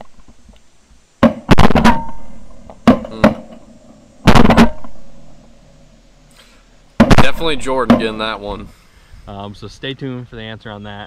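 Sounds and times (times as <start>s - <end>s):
shotgun shots: 1.2s - 3.4s, 4.2s - 5.4s, 7.0s - 8.4s.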